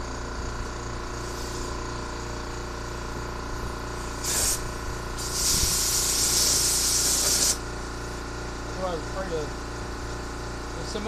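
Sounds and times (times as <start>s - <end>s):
steady low hum: 0.0s - 11.0s
compressed air blow gun hissing: 1.2s - 1.8s, 4.0s - 7.6s.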